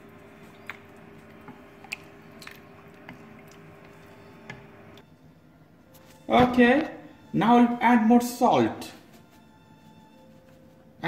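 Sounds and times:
spoon stirring wet food: 0:00.0 - 0:05.0.

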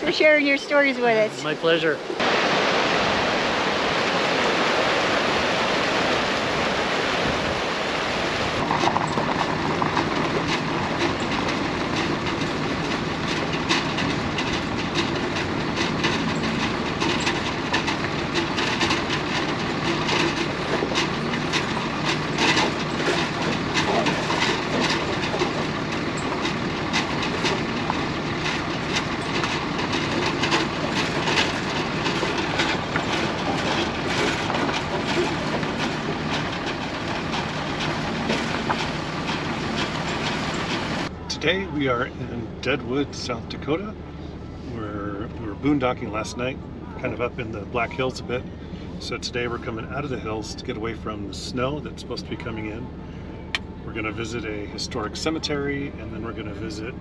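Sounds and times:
water rushing over rocks: 0:00.0 - 0:41.1
truck road noise on gravel: 0:00.0 - 0:57.0
rattling and clicking: 0:08.6 - 0:41.1.

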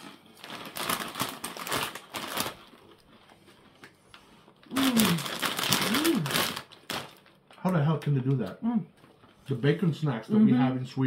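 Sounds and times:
potato chips crunching: 0:00.0 - 0:03.2, 0:04.6 - 0:07.7
person humming mmm: 0:04.6 - 0:06.5.

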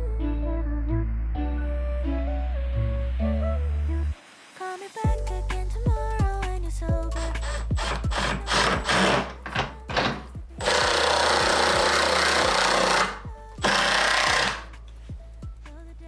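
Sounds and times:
background music: 0:00.0 - 0:16.0
power drill driving screws: 0:07.2 - 0:14.8.

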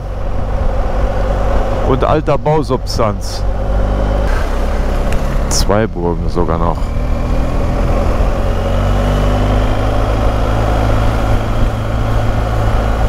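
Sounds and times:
motorcycle engine running: 0:00.0 - 0:13.0
road and wind noise: 0:00.0 - 0:13.0.

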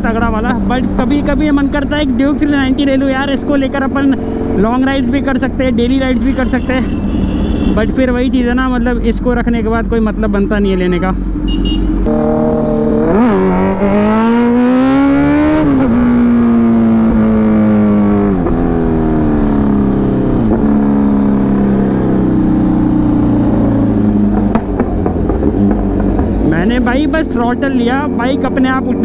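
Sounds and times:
motorcycle engine revving: 0:11.4 - 0:29.0
exhaust pops: 0:24.3 - 0:26.5.

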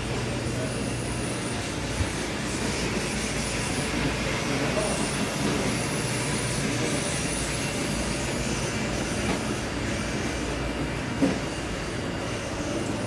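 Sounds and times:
market background rumble and hiss: 0:00.0 - 0:13.0.

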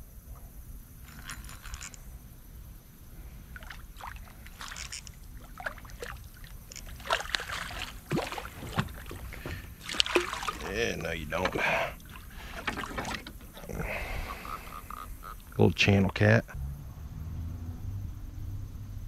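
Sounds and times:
fish splashing at water surface: 0:03.5 - 0:15.3.

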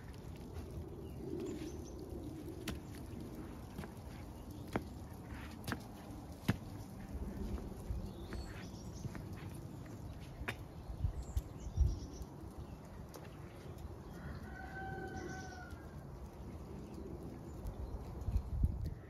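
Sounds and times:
steady low rumble: 0:00.0 - 0:14.4
rooster crowing: 0:14.0 - 0:16.0.

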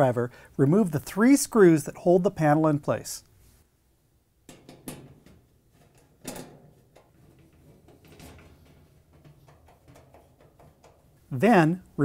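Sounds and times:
metal clicks and scrapes: 0:04.8 - 0:11.2.

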